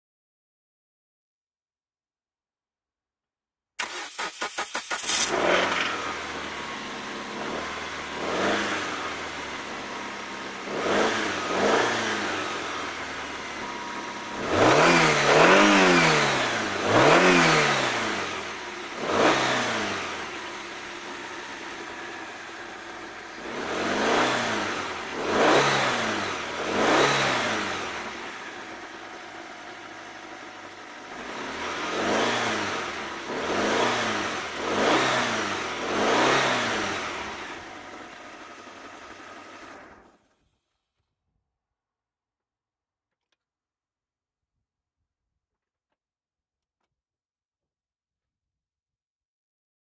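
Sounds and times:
car engine idling: 0:03.8 - 0:31.8, 0:37.1 - 0:40.4
car engine revving: 0:03.8 - 0:40.1.

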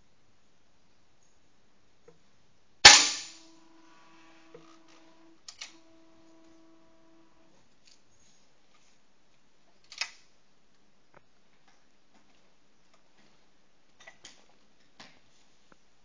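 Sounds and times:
air rifle shot: 0:02.8 - 0:03.6.

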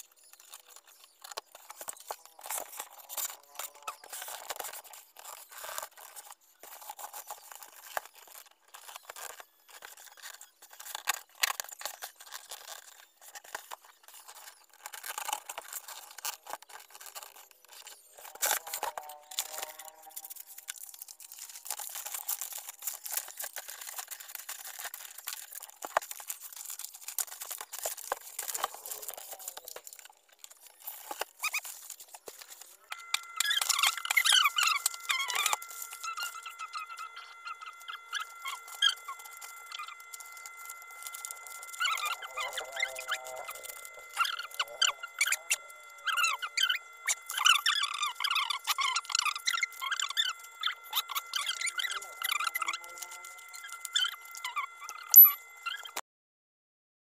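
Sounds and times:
paper rustling: 0:00.0 - 0:56.0.

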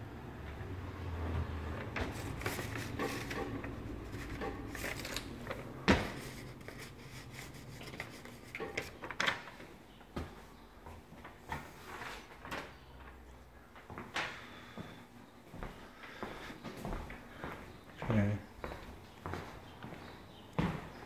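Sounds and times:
rustling: 0:01.8 - 0:09.5.

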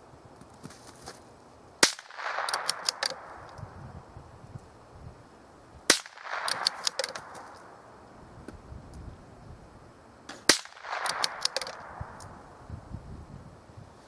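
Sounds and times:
rifle shots: 0:01.8 - 0:03.5, 0:05.9 - 0:07.8, 0:10.3 - 0:12.2
rifle bolt clicks and clatter: 0:02.2 - 0:03.6, 0:06.3 - 0:07.7, 0:10.3 - 0:12.3.

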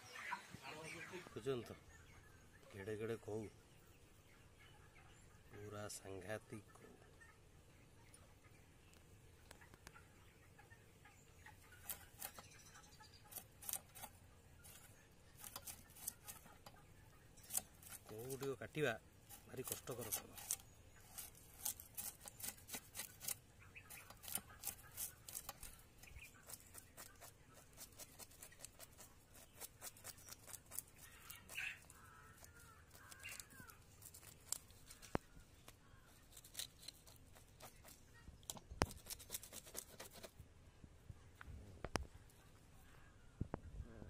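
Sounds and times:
knife scraping fish scales: 0:11.8 - 0:12.5, 0:13.2 - 0:16.8, 0:17.4 - 0:35.1, 0:36.1 - 0:38.0, 0:38.8 - 0:40.4
faint bird call: 0:30.8 - 0:36.3.

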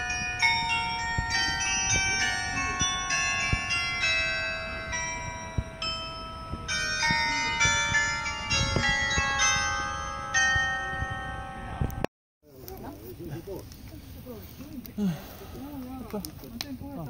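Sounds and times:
carillon bells playing melody: 0:00.0 - 0:12.0.

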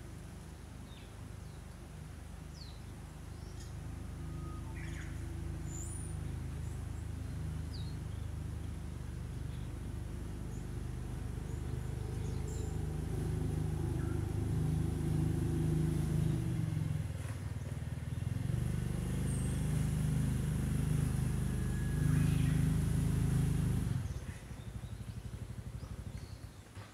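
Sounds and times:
low motor hum: 0:00.0 - 0:26.8
faint bird chirps: 0:02.5 - 0:08.8.

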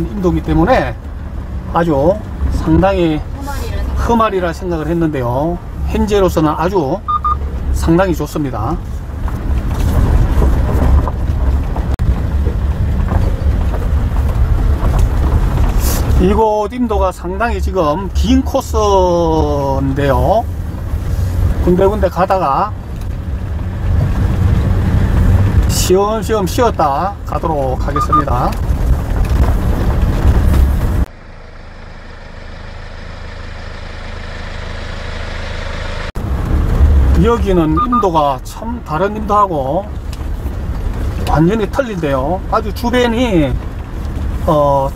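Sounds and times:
vehicle driving on gravel: 0:00.0 - 0:44.9
engine idling: 0:31.1 - 0:36.3.

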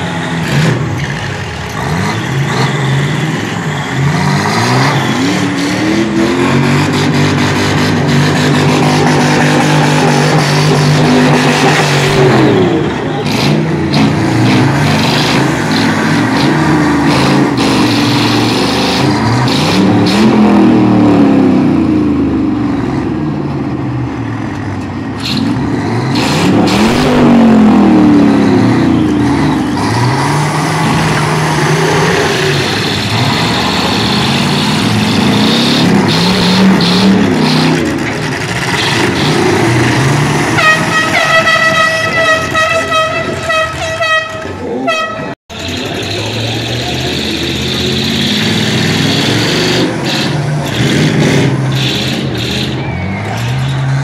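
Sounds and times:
truck engines revving: 0:00.0 - 0:54.0
trucks colliding: 0:00.0 - 0:54.0.

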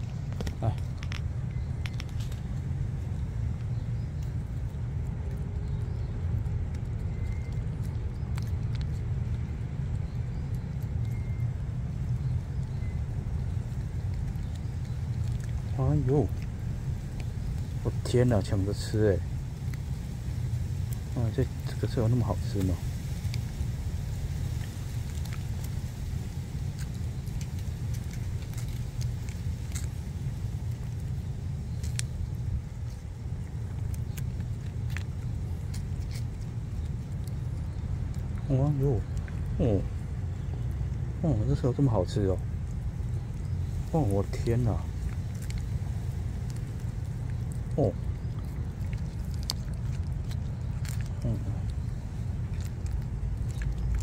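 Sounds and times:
cats licking: 0:00.0 - 0:54.0
low outdoor rumble: 0:00.0 - 0:54.0
small wet clicks: 0:00.0 - 0:54.0.

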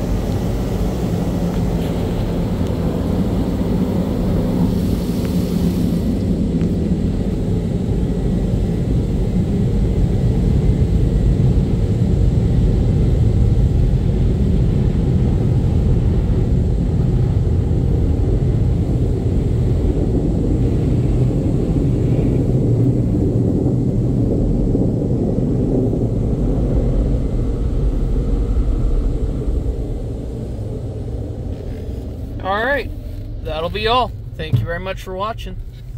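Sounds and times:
car cabin rumble: 0:00.0 - 0:08.1, 0:24.2 - 0:35.9.

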